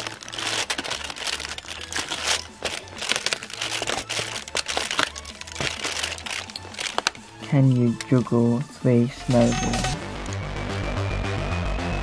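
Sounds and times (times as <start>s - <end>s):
cardboard and foil tearing and crinkling: 0.0s - 7.2s.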